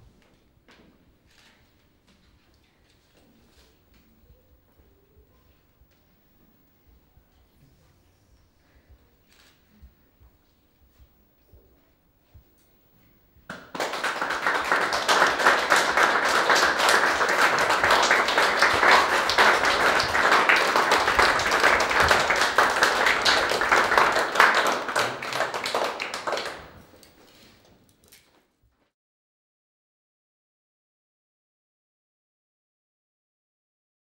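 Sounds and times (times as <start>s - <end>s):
audience applauding: 13.5s - 26.9s.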